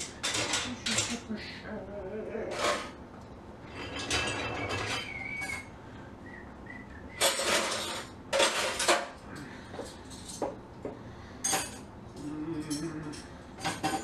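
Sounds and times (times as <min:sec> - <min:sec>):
dishes clinking in sink: 0:00.0 - 0:01.3, 0:03.7 - 0:05.7, 0:07.2 - 0:09.2, 0:11.4 - 0:11.9, 0:12.6 - 0:14.0.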